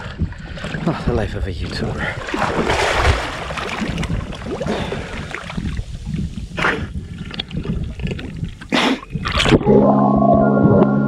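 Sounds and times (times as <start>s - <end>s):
wind buffeting microphone: 0.0s - 9.6s.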